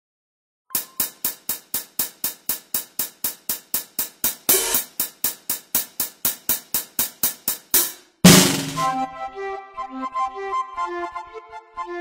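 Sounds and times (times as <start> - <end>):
music with sharp percussion beat: 0.7 - 9.1
loud percussion hit: 4.5 - 4.9, 8.3 - 9.1.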